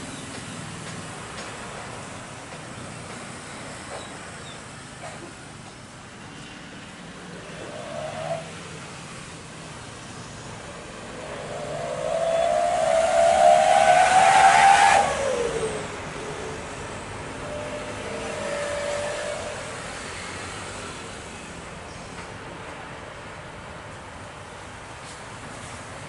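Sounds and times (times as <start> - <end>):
faint steady engine tone: 0.0 - 26.0
engine passing by: 6.2 - 21.9
distant rumble: 7.1 - 20.0.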